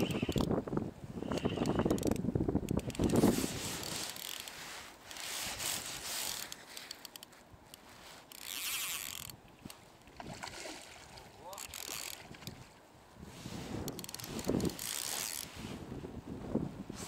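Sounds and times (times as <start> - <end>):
fishing reel whirring: 0.0 - 0.5, 1.3 - 2.2, 3.8 - 4.5, 8.2 - 9.4, 11.6 - 12.6, 13.9 - 15.5
wind buffeting microphone: 0.0 - 4.0, 11.6 - 17.0.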